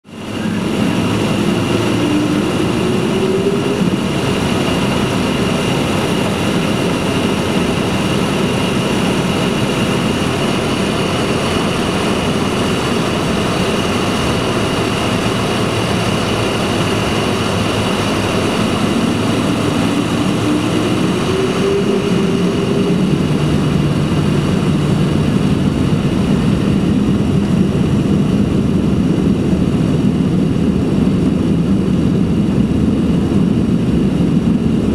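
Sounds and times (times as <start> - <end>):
jet engines rushing and whining: 0.0 - 34.9
low tone rising in pitch: 0.2 - 6.1, 13.6 - 29.6.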